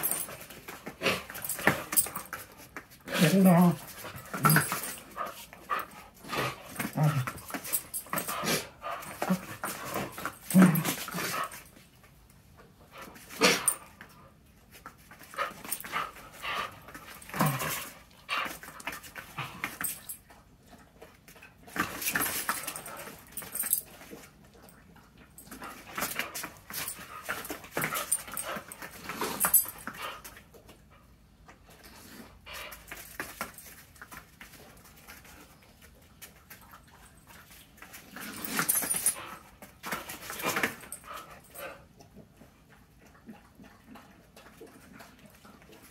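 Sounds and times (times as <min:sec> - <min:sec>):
dogs panting: 0:00.0 - 0:11.8
dogs growling: 0:03.0 - 0:11.6, 0:15.6 - 0:18.2.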